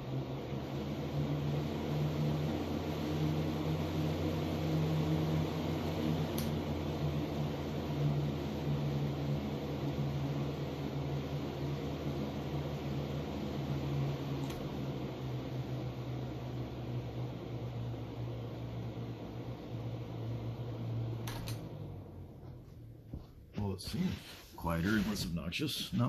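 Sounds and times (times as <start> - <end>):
box fan humming with air rush: 0.0 - 26.0
fan click: 6.2 - 6.6, 14.4 - 14.7, 21.2 - 21.8.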